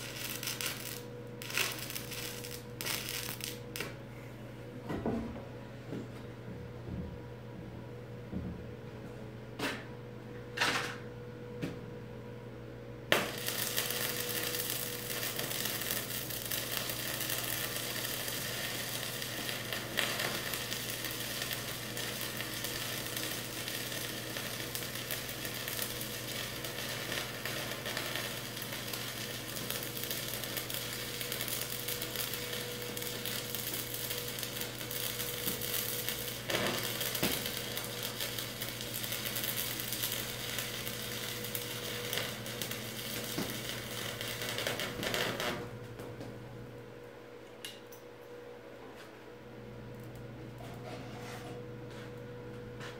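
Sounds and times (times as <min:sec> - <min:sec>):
welding arc crackling: 0:00.0 - 0:04.0, 0:13.1 - 0:45.8.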